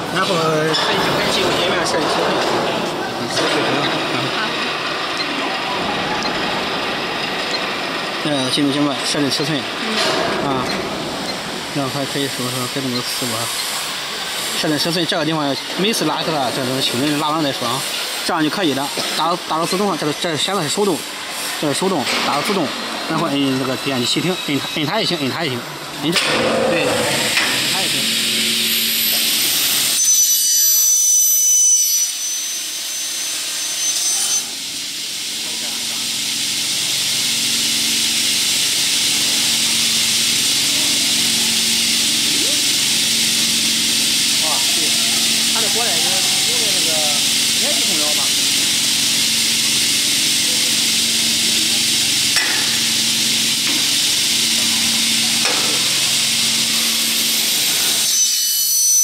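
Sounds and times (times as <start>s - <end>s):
cutting saw hissing: 8.3s - 25.6s, 26.7s - 30.5s, 31.8s - 58.8s
saw blade cutting metal: 31.8s - 34.6s, 51.6s - 59.0s.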